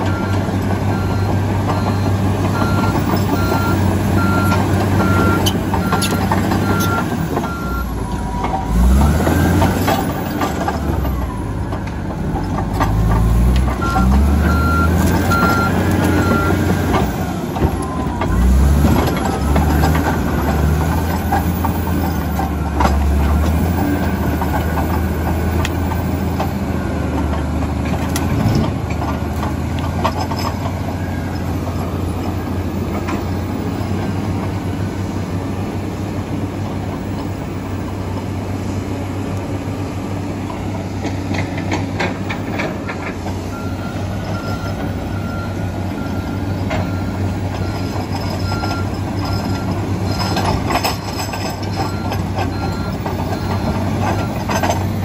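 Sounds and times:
reversing alarm beeping: 0:00.0 - 0:11.6, 0:13.7 - 0:16.8, 0:17.4 - 0:27.2, 0:42.8 - 0:54.8
bulldozer diesel engine working: 0:00.0 - 0:55.0.

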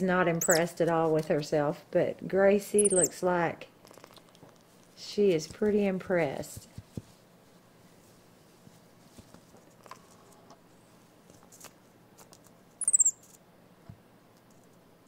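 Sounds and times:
monkey high-pitched squeak: 0:00.4 - 0:00.6, 0:02.8 - 0:03.2, 0:12.8 - 0:13.2
light taps and scuffs: 0:05.4 - 0:07.2.

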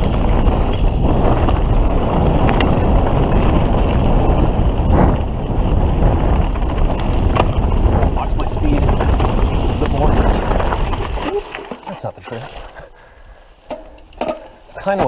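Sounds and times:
wind on microphone: 0:00.0 - 0:11.4
bike clicks and rattles: 0:00.0 - 0:12.9, 0:13.7 - 0:15.0
bike tyres rolling on dirt: 0:00.0 - 0:13.0.

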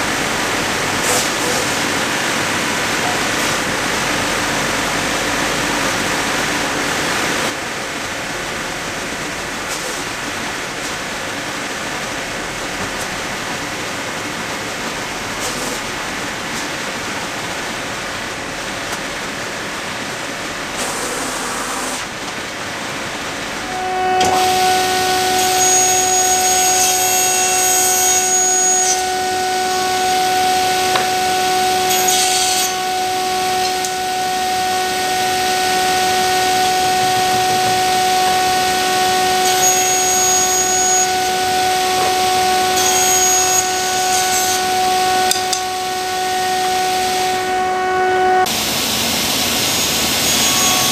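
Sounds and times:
table saw whining: 0:00.0 - 0:07.6, 0:23.3 - 0:50.9
belt sander running: 0:23.5 - 0:50.9.

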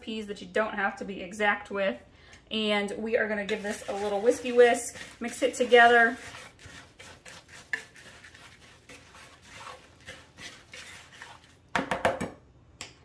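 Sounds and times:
whisk scraping in a bowl: 0:03.3 - 0:11.7.

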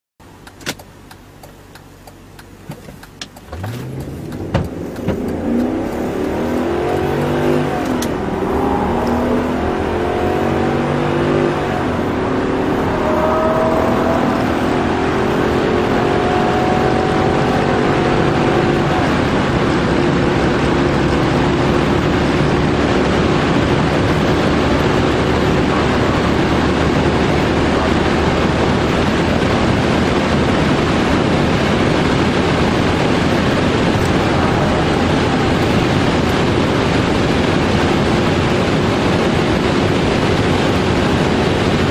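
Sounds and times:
car engine accelerating: 0:00.2 - 0:41.9
wind and road noise: 0:00.2 - 0:41.9
sharp clicks: 0:00.4 - 0:06.4.

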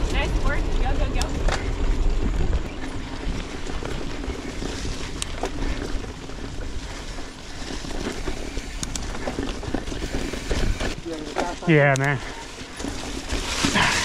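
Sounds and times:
wind rush on microphone: 0:00.0 - 0:11.2
bike tyres rolling on dirt: 0:00.0 - 0:14.0
bike knocking over roots: 0:07.5 - 0:14.0.

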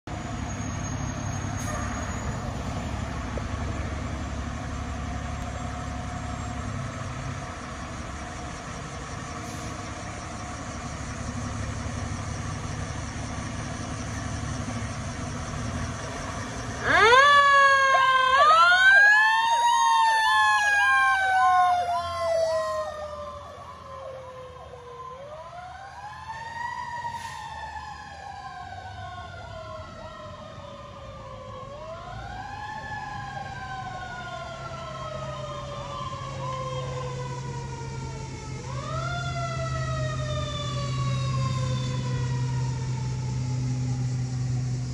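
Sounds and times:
fire engine idling: 0:00.1 - 0:44.9
wailing siren: 0:00.2 - 0:44.9
fast yelping siren tone: 0:16.8 - 0:25.6.

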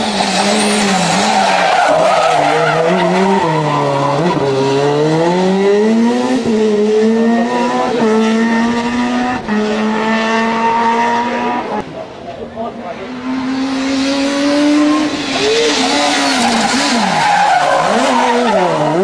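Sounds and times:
rally car engine revving: 0:00.0 - 0:12.2, 0:12.8 - 0:19.0
tyres squealing: 0:14.9 - 0:19.0.

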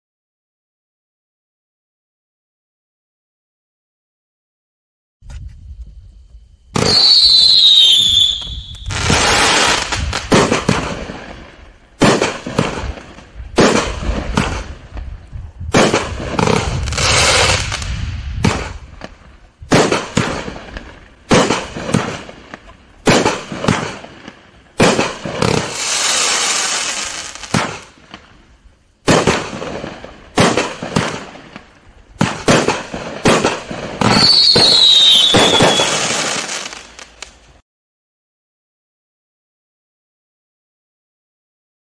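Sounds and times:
falling whistle: 0:06.8 - 0:09.4, 0:34.1 - 0:36.2
firework hiss: 0:06.8 - 0:37.5
firework launch thumps and bursts: 0:08.4 - 0:28.4, 0:29.0 - 0:37.4.

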